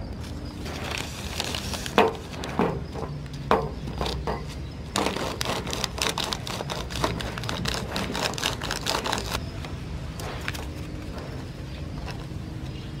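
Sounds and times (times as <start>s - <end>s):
crunching and scraping on metal: 0.0s - 13.0s
paper handling: 0.2s - 2.8s, 4.9s - 9.4s.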